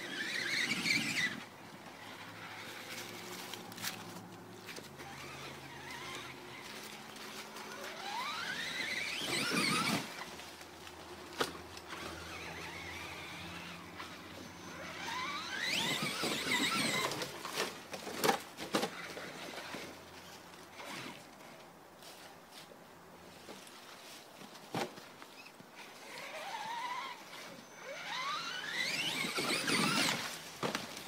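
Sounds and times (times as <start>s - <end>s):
electric motor whining: 0.0s - 3.6s, 4.8s - 10.3s, 11.8s - 17.3s, 26.1s - 30.4s.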